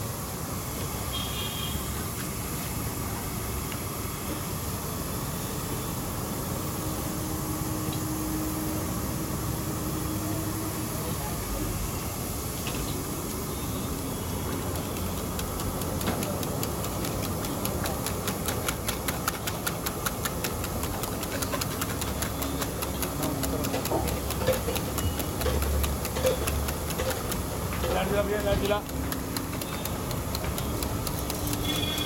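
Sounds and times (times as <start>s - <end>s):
street traffic rumble: 6.5s - 32.0s
whisk beating eggs in steel bowl: 14.5s - 32.0s.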